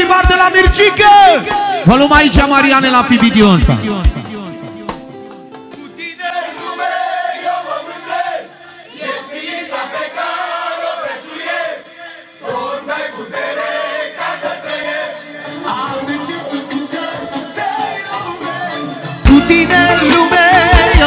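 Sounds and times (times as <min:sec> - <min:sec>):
live band music: 0:00.3 - 0:06.1, 0:15.4 - 0:21.0.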